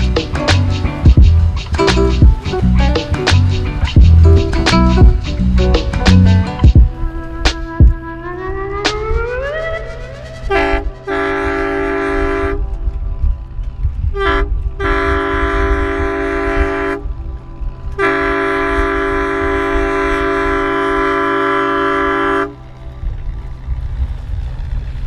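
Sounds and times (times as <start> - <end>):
low steady rumble: 0.0 - 25.0
boat horn blasts: 10.2 - 13.0, 14.1 - 17.2, 17.9 - 22.7.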